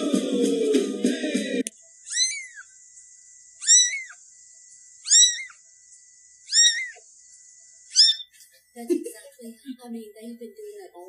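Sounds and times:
kitten mewing: 0:02.1 - 0:02.7, 0:03.6 - 0:04.2, 0:05.0 - 0:05.6, 0:06.5 - 0:07.0, 0:07.9 - 0:08.3.

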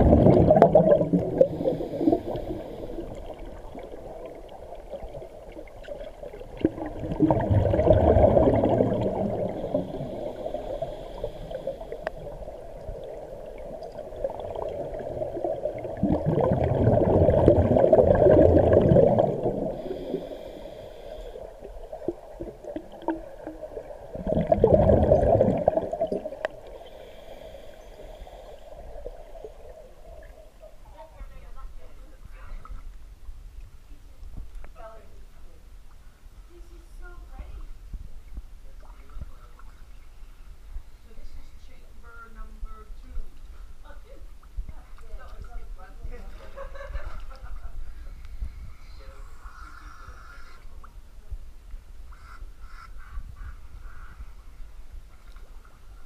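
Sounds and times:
bubbling exhalations underwater: 0:00.0 - 0:20.2, 0:21.5 - 0:26.7
regulator inhalation hiss: 0:01.4 - 0:03.3, 0:09.6 - 0:12.5, 0:19.6 - 0:21.7, 0:26.6 - 0:29.0.

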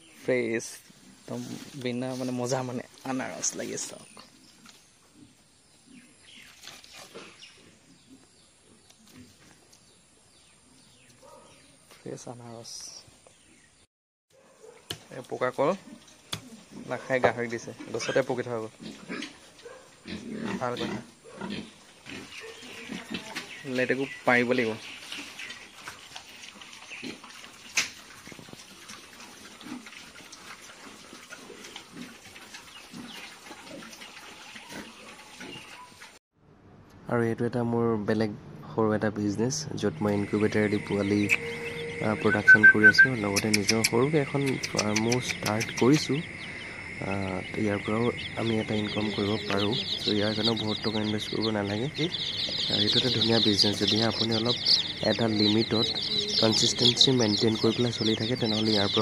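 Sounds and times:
pigs grunting: 0:15.7 - 0:23.6
higher falling chirps: 0:40.3 - 0:44.0.

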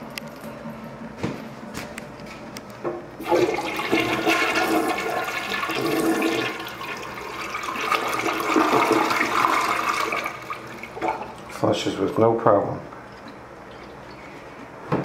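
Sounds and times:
toilet flushing: 0:03.2 - 0:12.2.

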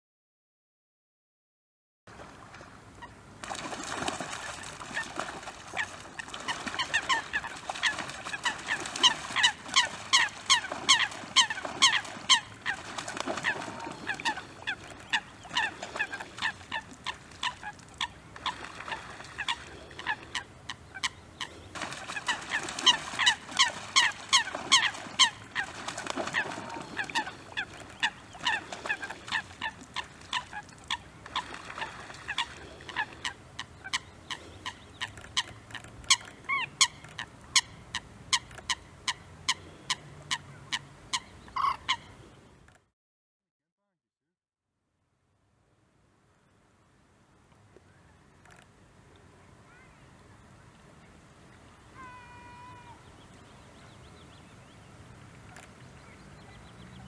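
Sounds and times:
wings splashing on water: 0:02.1 - 0:37.6
coots calling sharply: 0:40.7 - 0:42.1.

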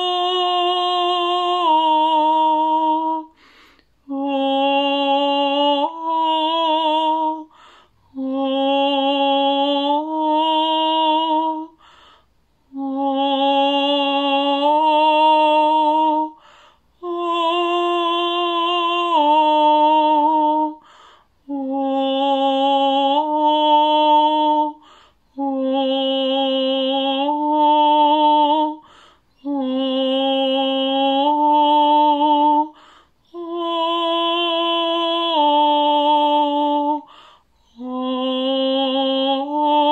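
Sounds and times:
woman singing wordless tones: 0:00.0 - 0:12.0, 0:12.6 - 0:39.9
breaths: 0:03.3 - 0:04.0, 0:07.5 - 0:08.1, 0:11.8 - 0:12.5, 0:16.4 - 0:17.0, 0:20.8 - 0:21.4, 0:24.8 - 0:25.4, 0:28.8 - 0:29.4, 0:32.7 - 0:33.3, 0:37.0 - 0:37.7.

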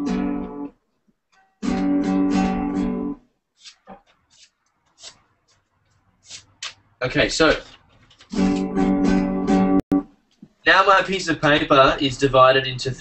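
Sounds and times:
acoustic guitar chords: 0:00.0 - 0:03.2, 0:08.4 - 0:10.2.

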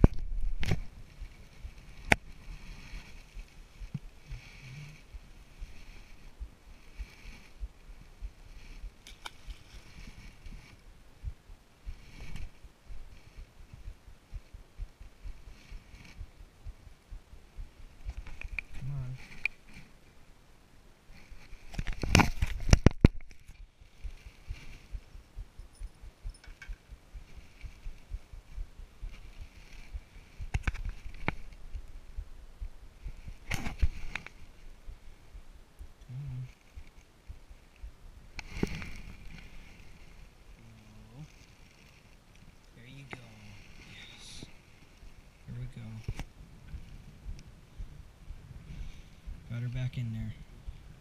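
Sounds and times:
fabric rubbing against camera: 0:00.0 - 0:20.0, 0:21.1 - 0:32.0, 0:32.9 - 0:35.0, 0:38.4 - 0:47.3
low thumps: 0:10.1 - 0:19.7, 0:21.7 - 0:39.6
low handling bumps: 0:21.6 - 0:39.6.

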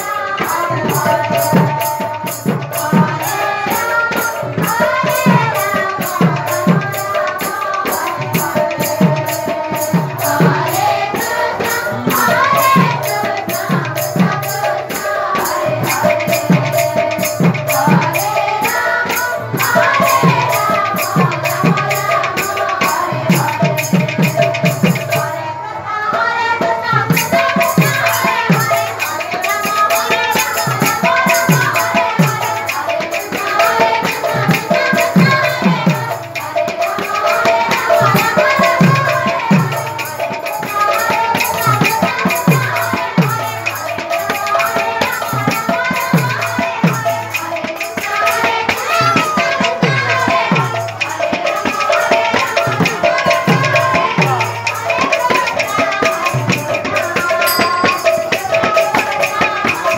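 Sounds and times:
person singing: 0:54.0 - 0:59.9.

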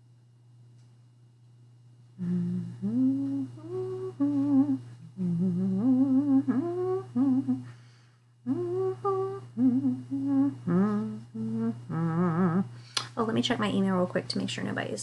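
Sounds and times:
woman humming: 0:02.2 - 0:07.8, 0:08.5 - 0:12.8.

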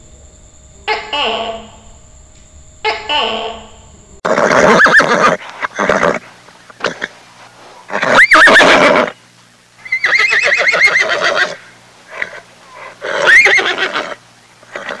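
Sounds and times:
horse whinnying: 0:04.2 - 0:06.2, 0:07.9 - 0:09.2, 0:09.8 - 0:15.0.

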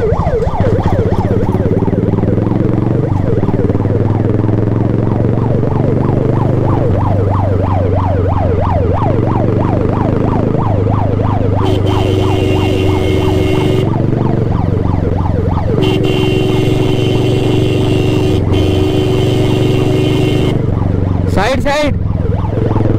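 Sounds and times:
ambulance siren wailing: 0:00.0 - 0:22.9
engine hum: 0:00.0 - 0:22.9
steady horn: 0:11.6 - 0:14.0, 0:15.8 - 0:20.7.

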